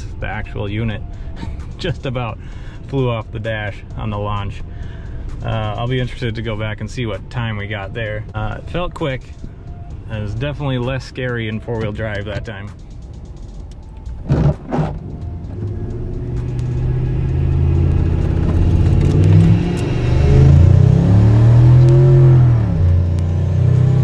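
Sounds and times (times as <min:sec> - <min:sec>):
truck engine accelerating: 0:12.8 - 0:24.0.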